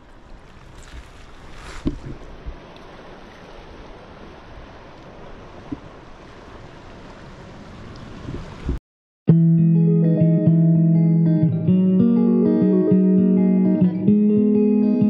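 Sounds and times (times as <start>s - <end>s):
river water rushing: 0.0s - 8.8s
wind on microphone: 0.0s - 8.8s
guitar music: 9.3s - 15.0s.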